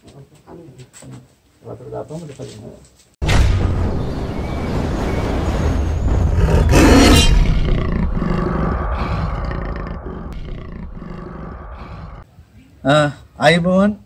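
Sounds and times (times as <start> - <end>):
deep roar-like logo blast: 3.2 - 12.2.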